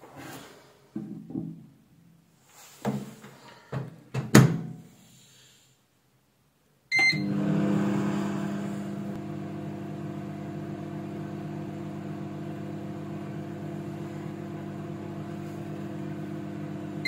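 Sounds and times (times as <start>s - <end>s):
microwave beep: 6.9s - 10.5s
microwave running hum: 6.9s - 17.0s.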